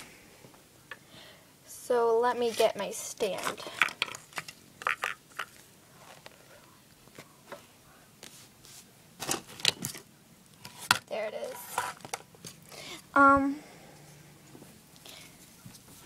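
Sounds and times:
objects clicking and knocking: 3.4 - 5.6.

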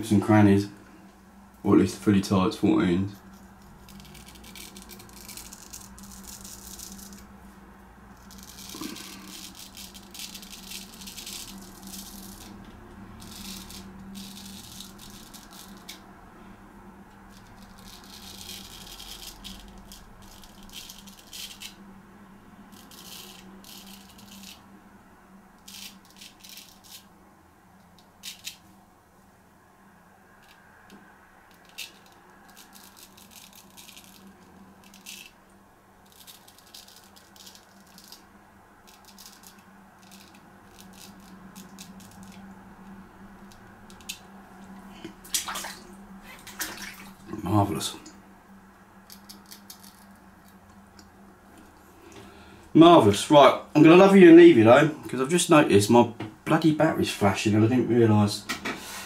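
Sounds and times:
steady low hum: 0.0 - 59.0
razor scraping stubble: 3.2 - 7.3, 8.1 - 16.0, 17.3 - 21.8, 22.7 - 24.7.

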